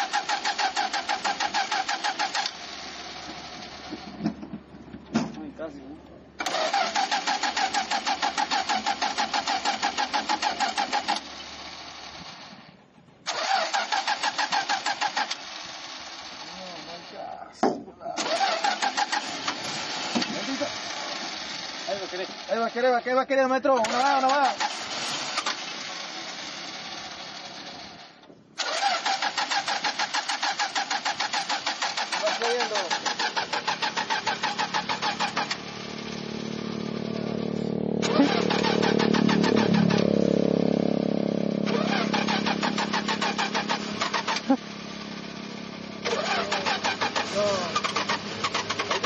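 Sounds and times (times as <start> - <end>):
starter motor cranking engine: 0.0 - 4.6, 6.4 - 17.3, 18.2 - 49.0.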